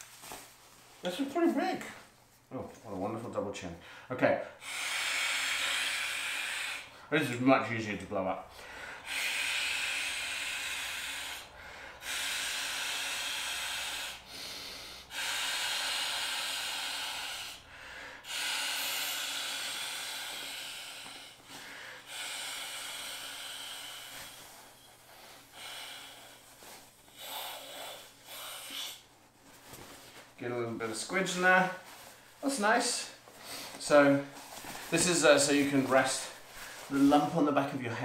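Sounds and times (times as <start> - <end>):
person inhaling: 8.5 - 29.1, 33.0 - 35.4, 36.0 - 37.1
breaths blown into pillow: 18.2 - 30.3.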